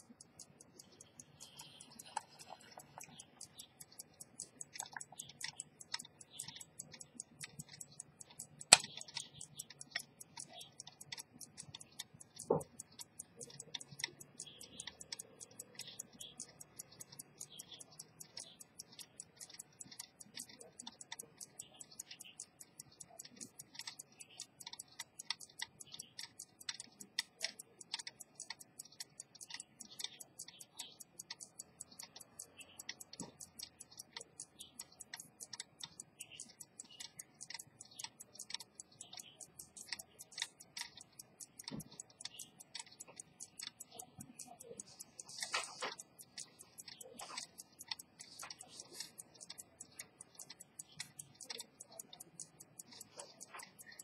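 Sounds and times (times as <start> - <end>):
pocket watch ticking: 0.0 - 54.0.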